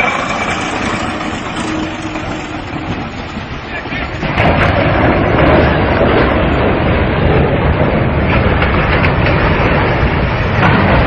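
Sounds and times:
ship hull grinding down launch ways: 0.0s - 11.0s.

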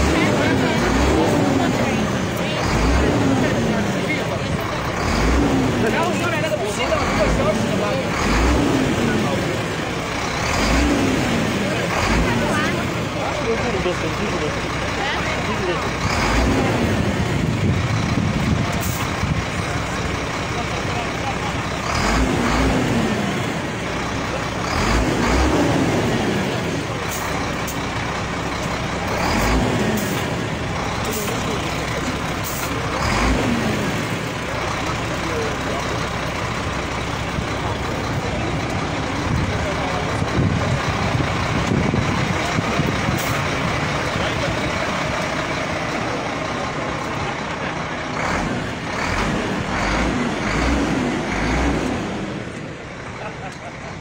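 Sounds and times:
truck engine running: 0.0s - 54.0s
dull low bumps: 24.8s - 47.3s.

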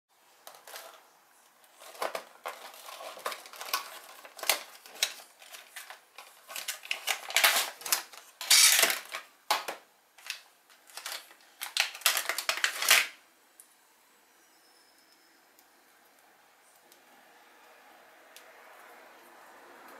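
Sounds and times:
cardboard and plastic handling: 0.4s - 13.2s.

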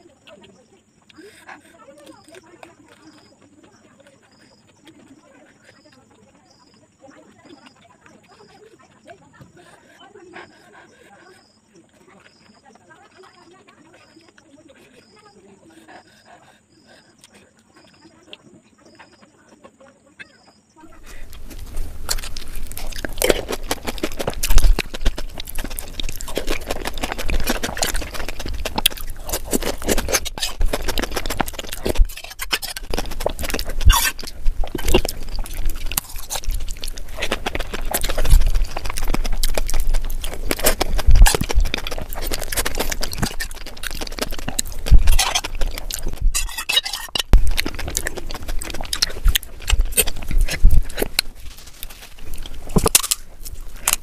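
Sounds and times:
wet chewing: 0.0s - 54.0s
crisp shells crunching: 20.9s - 54.0s.

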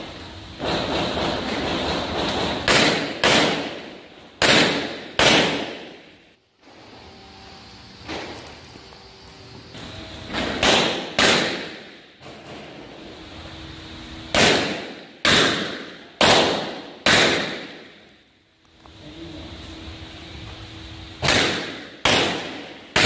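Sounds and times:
pistol shots echoing: 2.6s - 6.0s.

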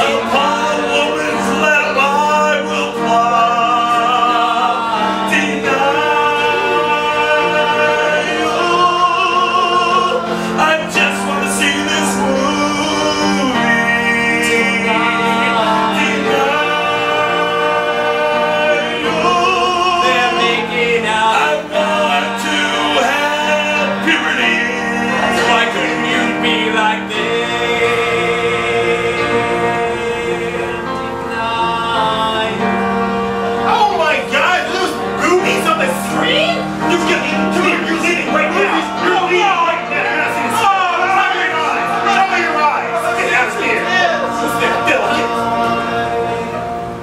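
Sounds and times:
person singing long notes: 0.0s - 33.4s
live musical accompaniment: 0.0s - 47.0s.

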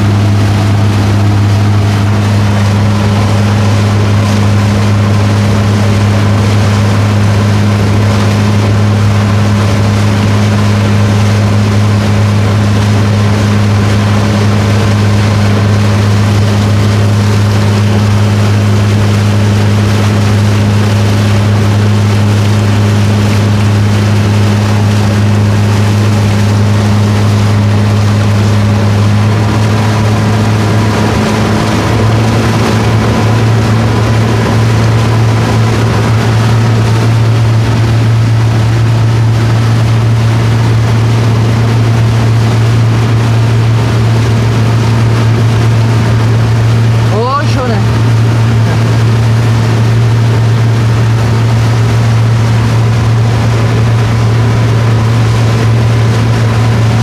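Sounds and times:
motorboat engine drone: 0.0s - 57.0s
wind and water rushing: 0.0s - 57.0s.

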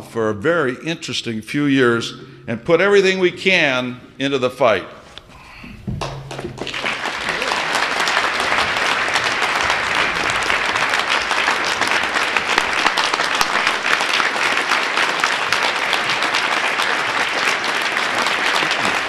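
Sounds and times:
audience applauding: 6.0s - 19.0s.

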